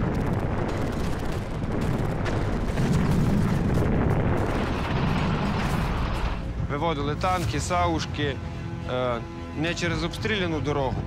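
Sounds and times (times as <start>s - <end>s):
artillery fire and explosions: 0.0s - 8.0s.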